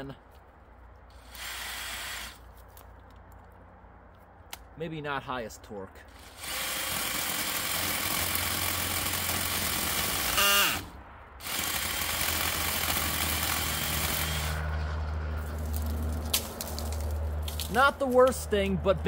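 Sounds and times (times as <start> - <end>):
cordless drill motor whining: 1.1 - 2.4, 6.1 - 14.6
chainsaw chain cutting wood: 1.1 - 2.5, 6.1 - 14.6.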